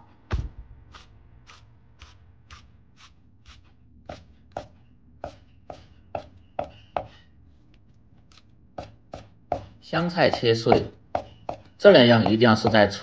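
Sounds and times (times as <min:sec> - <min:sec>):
cleaver chopping on wooden block: 0:10.3 - 0:13.0.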